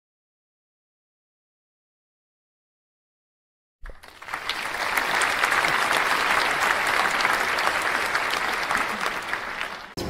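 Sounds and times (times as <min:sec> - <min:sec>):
crowd applauding: 0:03.8 - 0:10.0.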